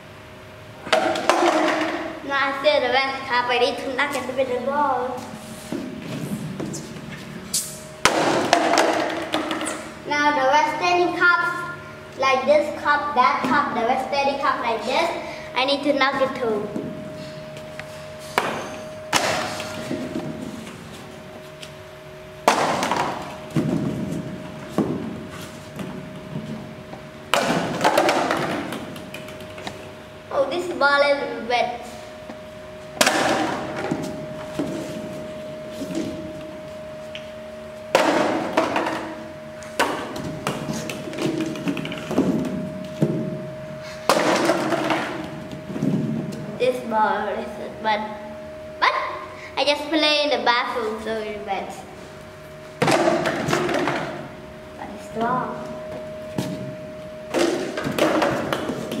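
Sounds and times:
plastic balls hitting plastic cups: 0.8s - 2.1s, 8.0s - 9.9s, 22.5s - 24.1s, 27.3s - 29.9s, 38.0s - 43.2s, 44.1s - 45.5s, 57.4s - 59.0s
balls knocking into plastic cups: 8.1s - 9.8s, 27.4s - 29.9s, 39.8s - 42.6s.

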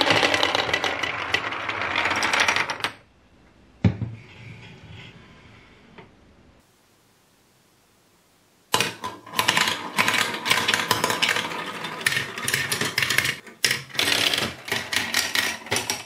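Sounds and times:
plastic balls clattering down tracks: 0.0s - 3.0s, 8.7s - 16.0s.

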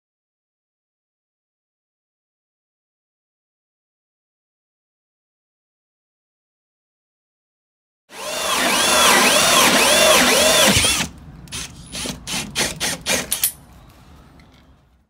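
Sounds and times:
drill cutting through wood: 8.1s - 13.4s.

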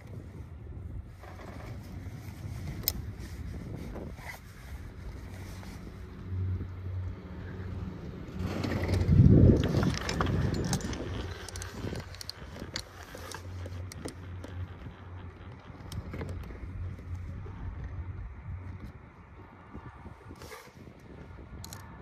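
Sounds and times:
chairlift humming: 0.0s - 21.6s
clicks and rattles: 8.4s - 17.2s.

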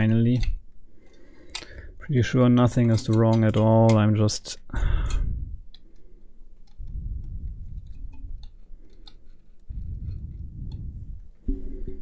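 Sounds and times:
plastic toy parts clicking: 0.0s - 1.8s, 2.6s - 4.4s, 7.8s - 9.7s
low rumbling: 4.8s - 5.7s, 6.8s - 8.6s, 9.7s - 12.0s.

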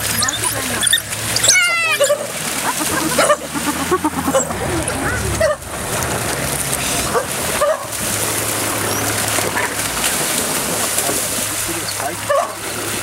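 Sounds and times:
wild dogs yelping and whimpering: 0.0s - 5.7s
animals splashing through water: 0.0s - 13.0s.

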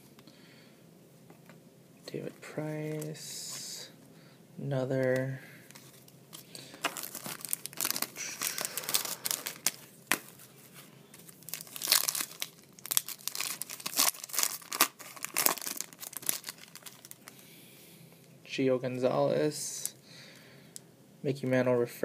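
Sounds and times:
foil packs tearing and crinkling: 6.6s - 10.4s, 11.2s - 17.3s.

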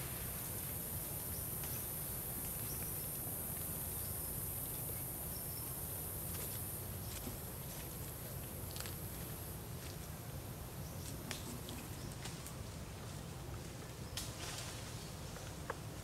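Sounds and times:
insect chorus drone: 0.0s - 16.0s.

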